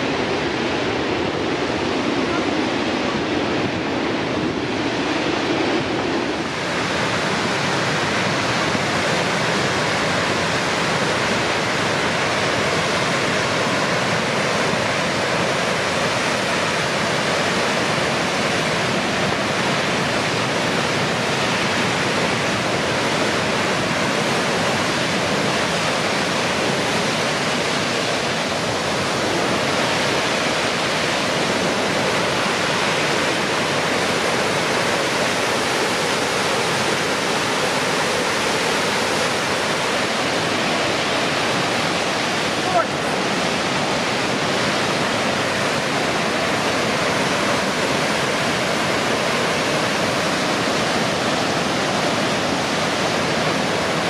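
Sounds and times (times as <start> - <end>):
waterfall rushing: 0.0 - 54.0.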